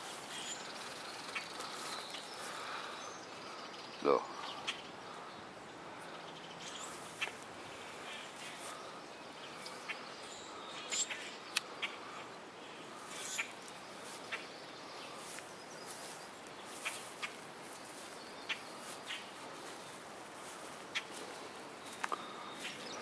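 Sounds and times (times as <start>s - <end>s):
faint outdoor hiss: 0.0s - 23.0s.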